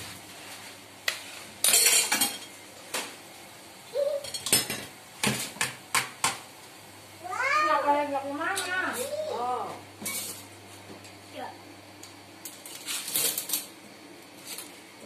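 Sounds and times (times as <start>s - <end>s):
metal pots and utensils clattering: 1.6s - 2.5s, 4.2s - 4.9s, 10.0s - 10.5s.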